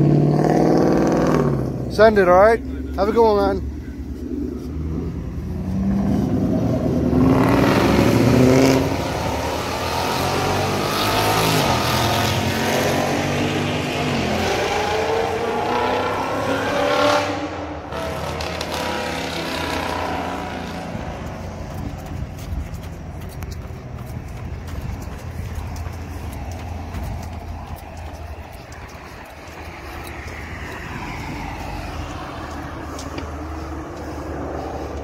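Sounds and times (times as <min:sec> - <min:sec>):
car engine accelerating hard: 0:04.1 - 0:22.1.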